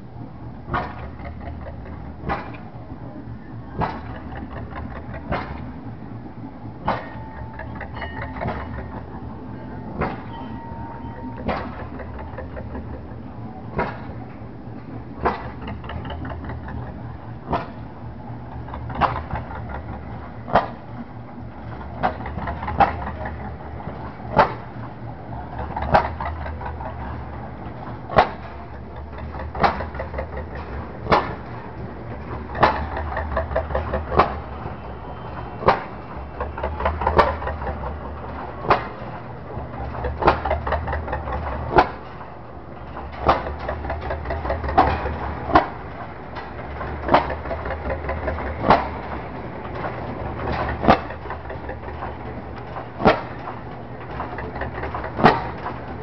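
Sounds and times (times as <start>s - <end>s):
low rumble of engines: 0.0s - 56.0s
engine ticking: 3.8s - 5.8s, 15.1s - 56.0s
stationary engine popping: 29.1s - 31.6s, 35.6s - 39.0s, 39.6s - 42.0s, 46.6s - 49.1s, 49.7s - 52.2s.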